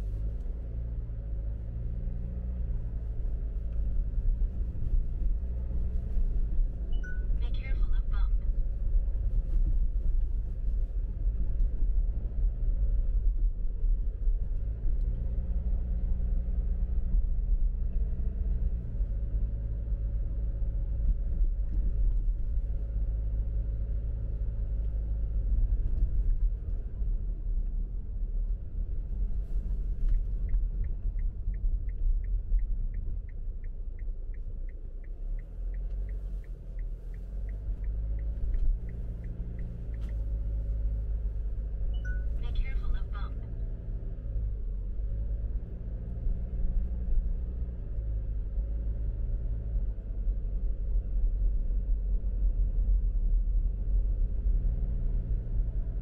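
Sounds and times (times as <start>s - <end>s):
car driving rumble: 0.0s - 56.0s
turn signal ticking: 29.3s - 43.6s.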